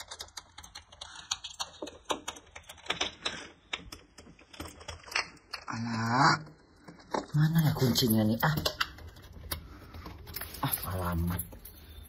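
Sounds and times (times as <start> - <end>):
keys jingling in a lock: 7.7 - 12.0.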